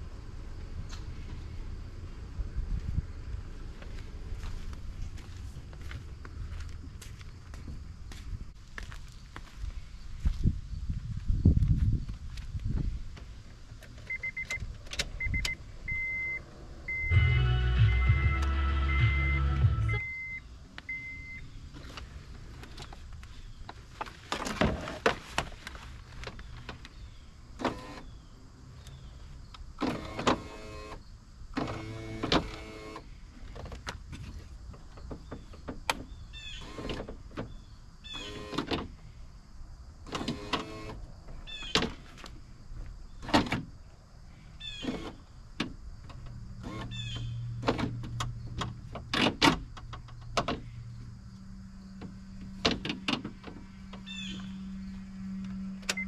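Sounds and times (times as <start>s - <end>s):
clicks and knocks of car parts: 43.2s - 43.8s, 44.9s - 50.8s, 52.0s - 54.0s.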